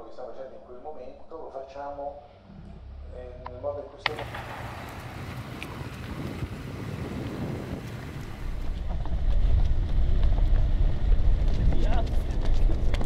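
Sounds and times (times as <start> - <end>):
wind buffeting microphone: 4.1 - 13.0.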